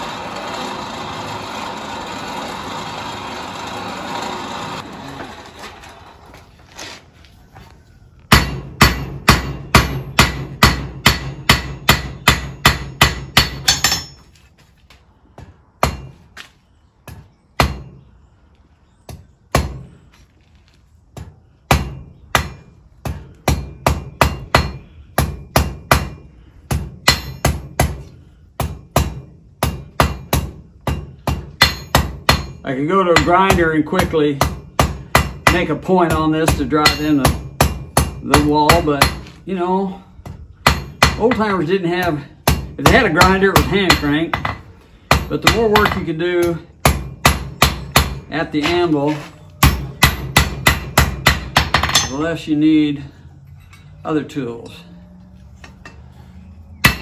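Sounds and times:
forge blower running: 0.0s - 6.4s
hammer striking metal on anvil: 8.3s - 14.2s, 15.8s - 16.2s, 21.2s - 28.0s, 28.6s - 32.6s, 34.4s - 39.2s, 49.6s - 52.3s.

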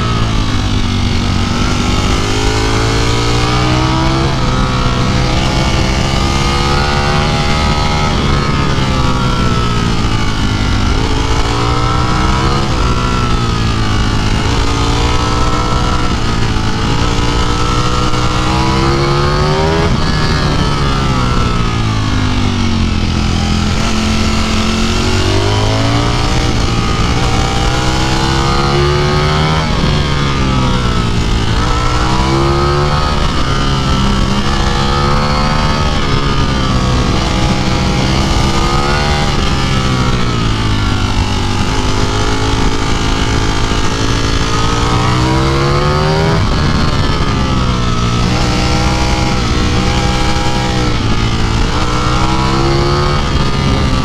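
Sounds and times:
motorcycle engine accelerating: 0.0s - 54.0s.

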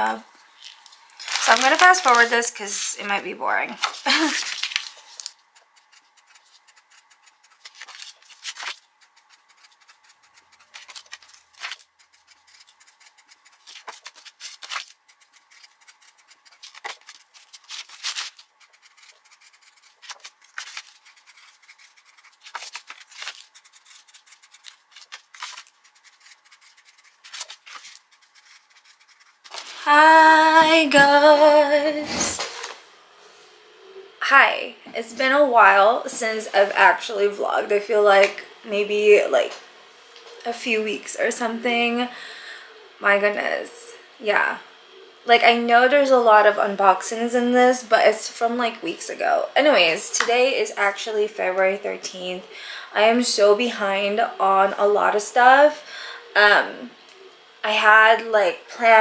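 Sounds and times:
marker squeaking on card: 5.5s - 29.6s.

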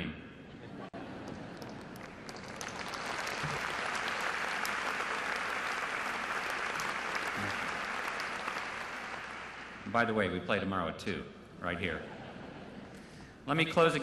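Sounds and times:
audience applauding: 1.0s - 9.9s.

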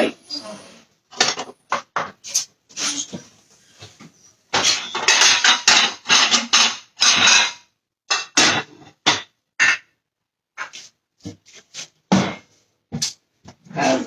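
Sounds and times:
dishes and utensils clattering: 1.1s - 3.3s, 4.5s - 9.9s, 12.1s - 13.1s.

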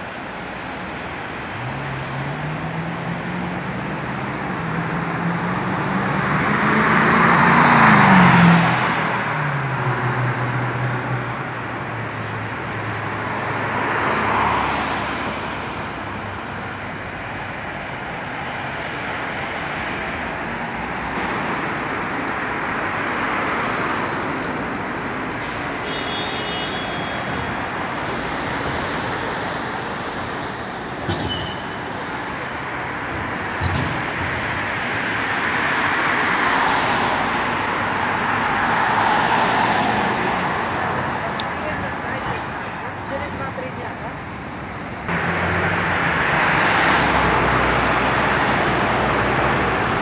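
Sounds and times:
vehicles passing close by: 0.0s - 50.0s
road traffic hiss: 17.7s - 33.6s.

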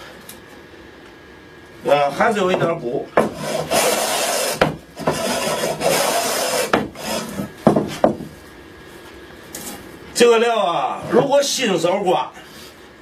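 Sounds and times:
hand plane shaving wood: 3.2s - 7.5s
sharp knocks: 4.6s - 5.4s, 6.7s - 7.0s, 7.6s - 8.3s.

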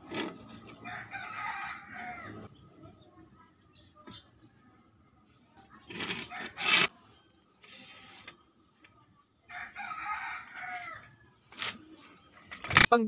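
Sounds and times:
rooster crowing: 0.8s - 2.5s, 9.5s - 11.1s.

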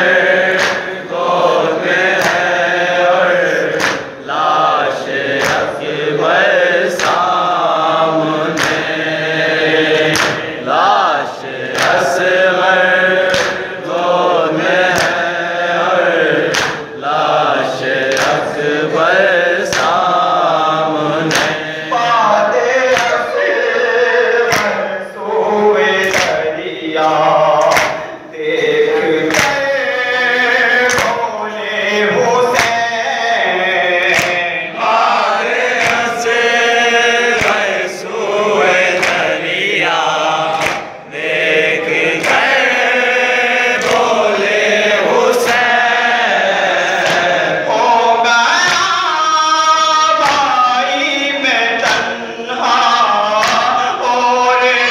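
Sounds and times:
crowd of men chanting: 0.0s - 54.9s
chest-beating slaps: 0.4s - 1.0s, 2.0s - 2.6s, 3.7s - 4.2s, 5.2s - 5.8s, 6.9s - 7.4s, 8.4s - 9.0s, 9.9s - 10.6s, 11.6s - 12.2s, 13.2s - 13.7s, 14.8s - 15.3s, 16.4s - 16.9s, 18.1s - 18.5s, 19.7s - 20.1s, 21.2s - 21.8s, 24.5s - 24.8s, 26.0s - 28.7s, 29.3s - 29.7s, 30.8s - 31.2s, 32.5s - 32.9s, 34.0s - 34.6s, 35.5s - 36.4s, 37.3s - 37.8s, 38.7s - 39.4s, 40.5s - 41.5s, 42.1s - 42.7s, 43.8s - 44.2s, 47.0s - 47.5s, 50.2s - 50.5s, 53.4s - 53.8s
man chanting a lament: 10.6s - 40.6s, 41.3s - 54.9s.

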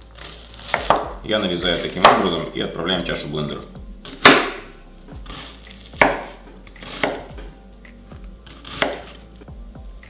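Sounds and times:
knife chopping on wooden board: 0.2s - 2.4s, 4.0s - 9.2s.

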